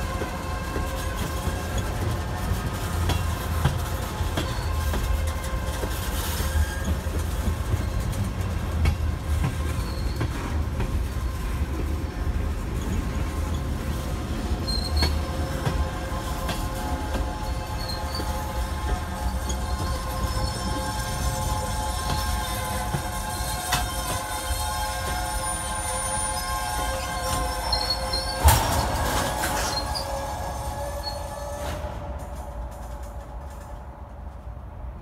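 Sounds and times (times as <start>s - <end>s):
train wheels rumbling on rails: 0.0s - 35.0s
thin wheel squeal: 9.6s - 10.6s, 14.6s - 15.4s, 17.3s - 32.2s.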